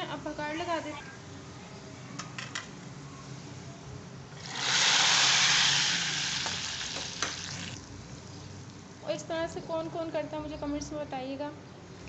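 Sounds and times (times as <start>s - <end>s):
hot oil sizzling: 4.4s - 7.9s.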